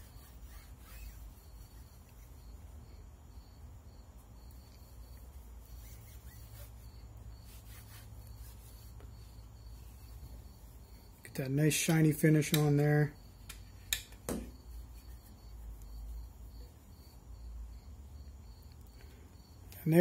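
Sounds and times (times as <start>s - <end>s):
cloth rubbing on gun barrels: 0.0s - 2.8s, 4.6s - 12.5s, 14.5s - 17.0s.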